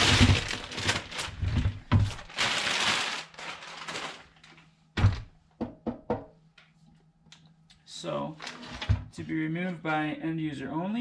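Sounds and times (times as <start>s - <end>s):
plastic bag crinkling: 0.0s - 4.7s, 8.4s - 8.8s.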